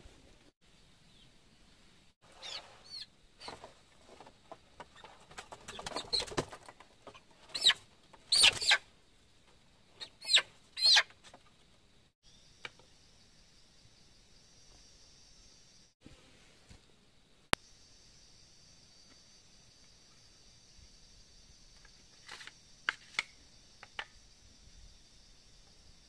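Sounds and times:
chickens squawking: 5.0 - 8.8, 10.0 - 11.1
high insect drone: 12.2 - 16.0, 17.6 - 26.0.

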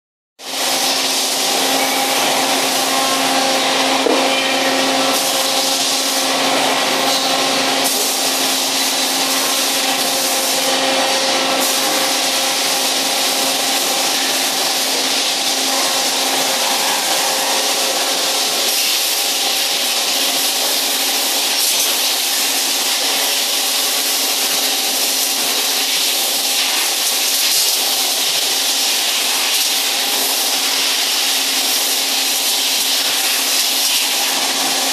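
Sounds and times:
machines humming with steady tones: 0.9 - 28.8.

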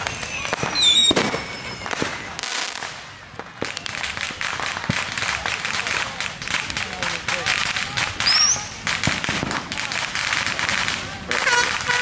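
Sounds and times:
high whistling tones: 0.0 - 2.4
fireworks bangs and pops: 0.0 - 12.0.

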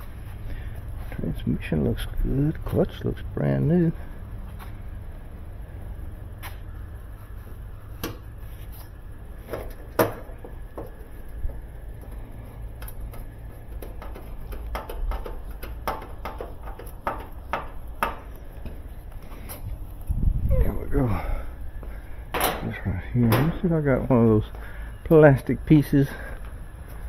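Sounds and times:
steady low hum: 0.0 - 27.0
screwdriver clicks and metallic knocks: 12.8 - 18.3.

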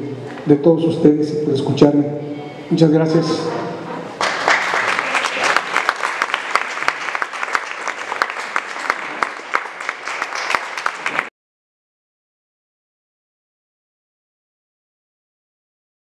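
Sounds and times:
audience applauding: 4.1 - 11.3.

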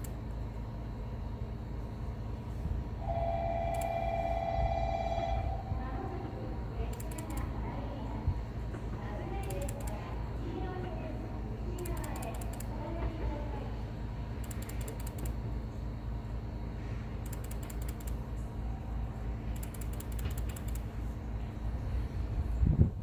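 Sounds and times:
railcar low rumble: 0.0 - 23.0
rapid clicking bursts: 6.9 - 7.5, 9.4 - 10.0, 11.8 - 12.7, 14.4 - 15.4, 17.2 - 18.2, 19.6 - 20.9.

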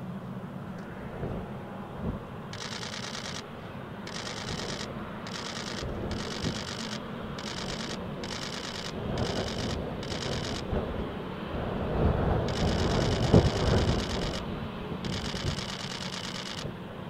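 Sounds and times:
jet engines rumbling at low power: 0.0 - 17.0
crackling hiss: 12.3 - 16.6.

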